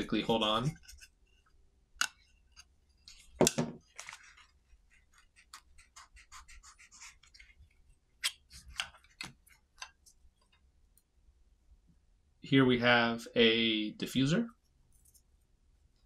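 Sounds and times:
scratching and rustling: 3.0 - 7.9.

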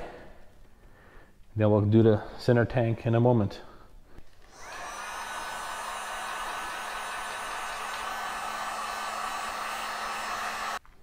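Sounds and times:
heat gun fan blowing: 4.2 - 10.8.

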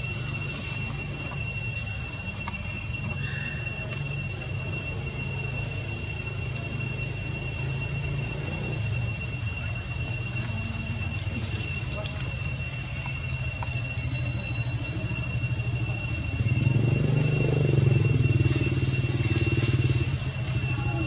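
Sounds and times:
high-pitched whine: 0.0 - 21.0
motor engine running: 15.0 - 21.0.

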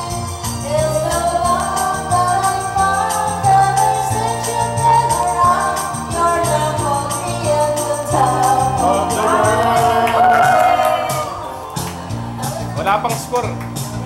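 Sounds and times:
karaoke backing track: 0.0 - 14.0
women singing karaoke: 0.6 - 11.4.

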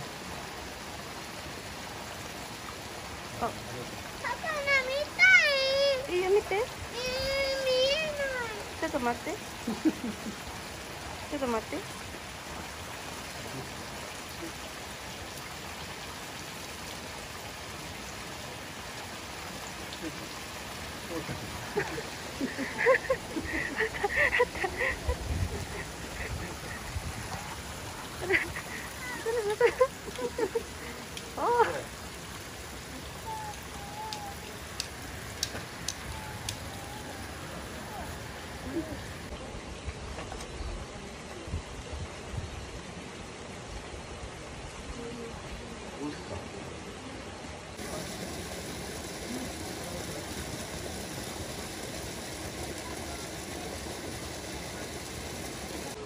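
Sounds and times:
stream water rushing: 0.0 - 56.0
faint sharp clicks: 33.5 - 36.6.

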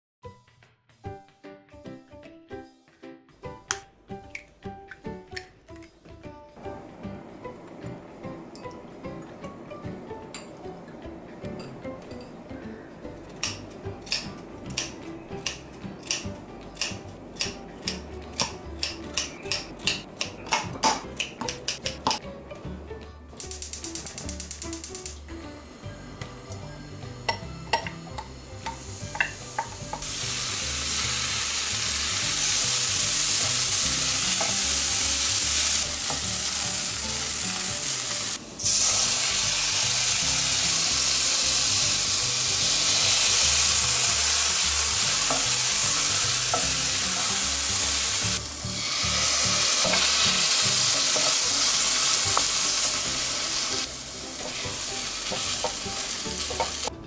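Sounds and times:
spoon clicking against pan: 13.4 - 22.2
vegetables sizzling in hot oil: 26.4 - 56.9.

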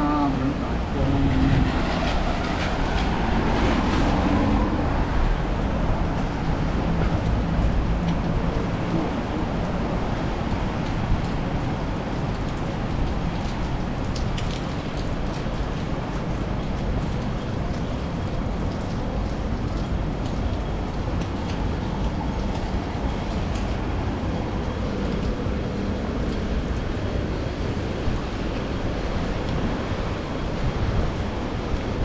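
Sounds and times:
rain and wind rushing: 0.0 - 32.0
road traffic: 0.0 - 32.0.

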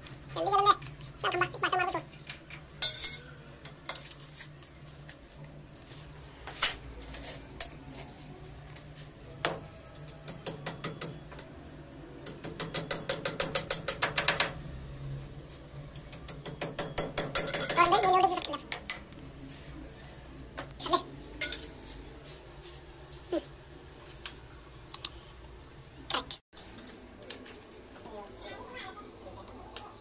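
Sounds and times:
hammer tapping metal post: 12.2 - 14.6.

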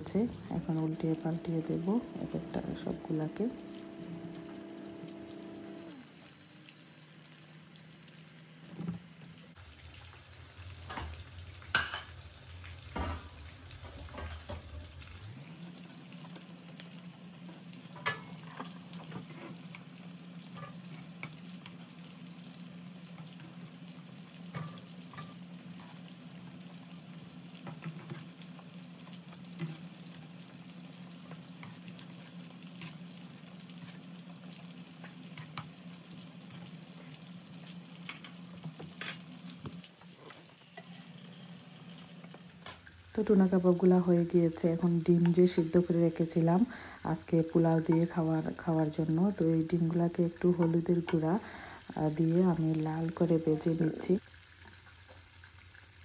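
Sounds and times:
low steady hum: 0.0 - 8.1
food sizzling in oil: 0.0 - 56.0.

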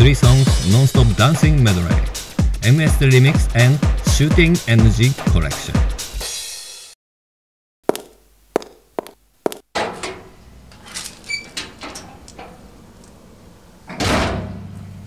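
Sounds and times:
outdoor street background: 7.9 - 15.0.

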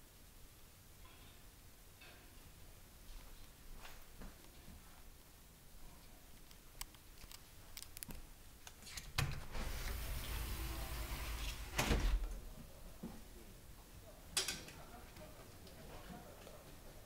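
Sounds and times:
sliding door rolling on track: 9.4 - 12.4.

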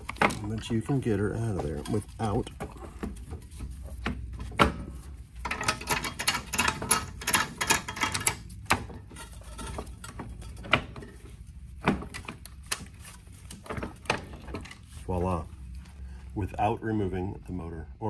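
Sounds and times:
metal parts clicking and rattling: 0.0 - 3.9, 5.0 - 15.1.

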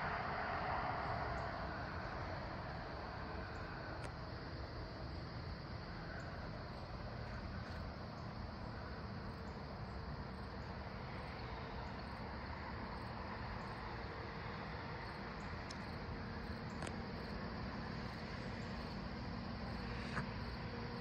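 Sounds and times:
faint steady hum: 0.0 - 21.0
low rumble and hiss: 0.0 - 21.0
faint high ticks: 3.5 - 4.2, 15.4 - 15.9, 16.6 - 17.0.

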